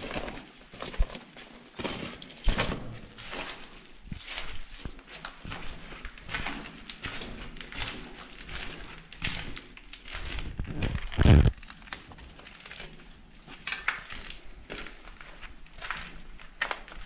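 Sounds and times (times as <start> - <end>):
footsteps crunching on grit: 0.0 - 11.6, 14.4 - 17.0
sharp crackles: 10.4 - 12.7.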